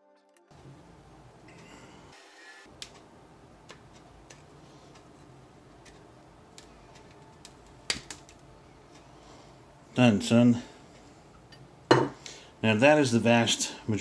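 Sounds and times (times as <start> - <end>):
plastic cracking: 5.9 - 8.5.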